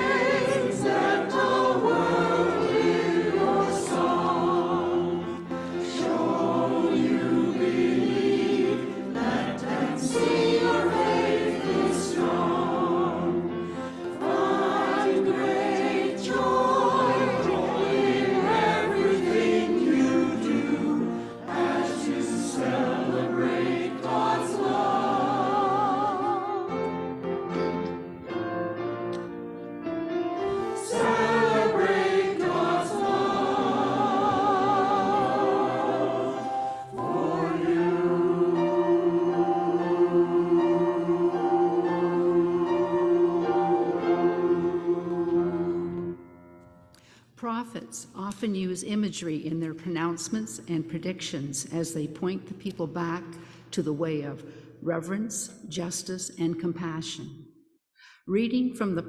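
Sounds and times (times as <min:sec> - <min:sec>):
choir singing in harmony: 0:00.0 - 0:46.6.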